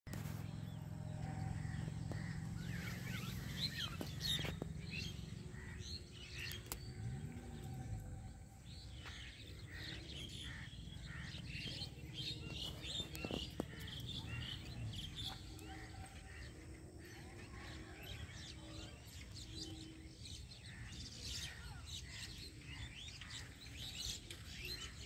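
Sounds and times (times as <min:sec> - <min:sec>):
low rumble: 0:00.1 - 0:17.6
small birds chirping: 0:00.1 - 0:25.0.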